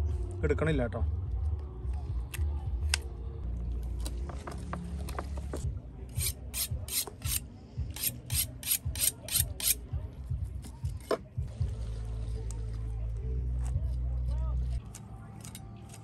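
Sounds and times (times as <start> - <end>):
knife sharpening metal scraping: 6.1 - 7.4, 8.0 - 9.8.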